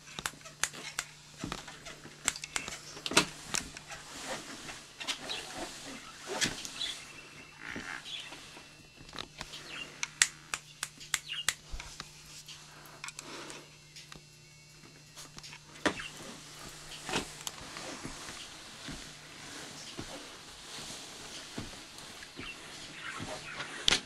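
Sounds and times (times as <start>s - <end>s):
faint low hum: 0.0s - 24.0s
quick sharp clicks: 10.0s - 11.7s
footsteps on treadmill: 15.8s - 24.0s.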